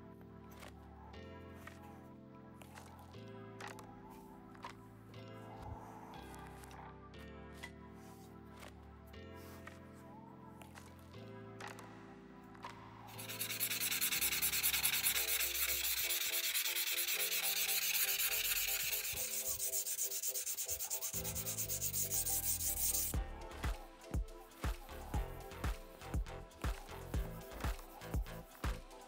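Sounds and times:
knife blade rubbed with abrasive: 13.1s - 23.2s.

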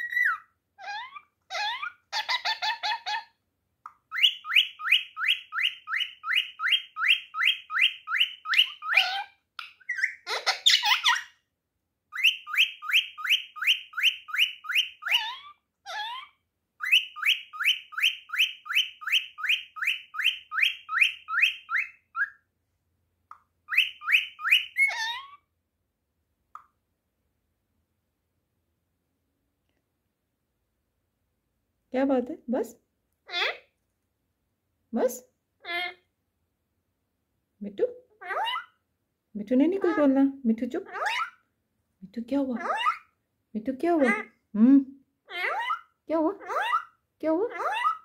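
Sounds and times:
harsh parrot calls: 0.0s - 3.4s, 4.1s - 11.4s, 12.2s - 22.4s, 23.7s - 25.4s, 38.2s - 38.8s, 40.9s - 41.4s, 45.2s - 48.0s
parrot chirping: 0.0s - 11.4s, 12.1s - 22.5s, 23.4s - 25.5s, 33.2s - 33.8s, 35.6s - 36.1s, 37.9s - 38.9s, 39.7s - 41.6s, 42.4s - 43.3s, 43.9s - 44.3s, 45.2s - 48.0s.

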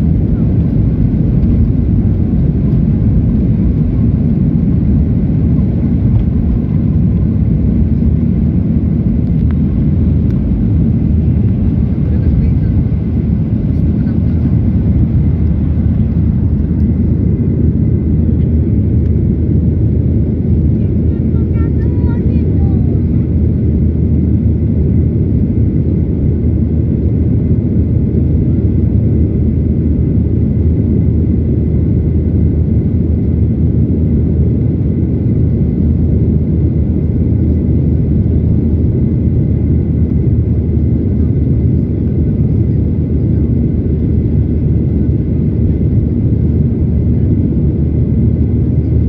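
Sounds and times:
airplane cabin engine roar: 0.0s - 49.0s.

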